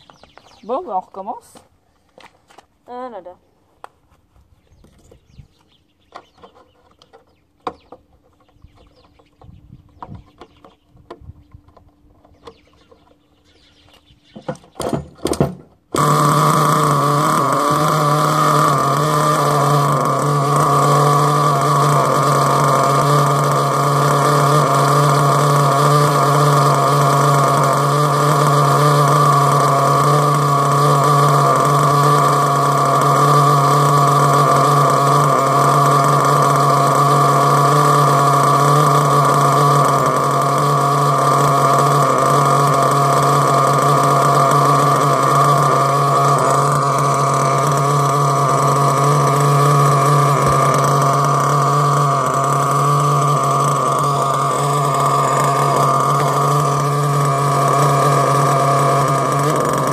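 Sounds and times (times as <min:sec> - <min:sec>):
small engine idling loudly: 0:05.2 - 0:59.9
pull-start strokes: 0:15.9 - 0:59.9.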